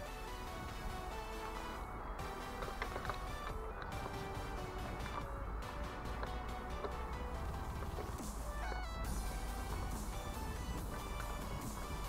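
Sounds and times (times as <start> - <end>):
background music with held notes: 0.0 - 12.0
low steady rumble: 0.0 - 12.0.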